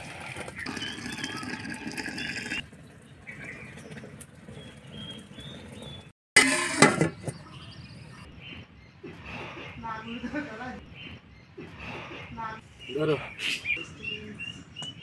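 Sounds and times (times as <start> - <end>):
liquid pouring into metal pot: 0.6 - 2.6.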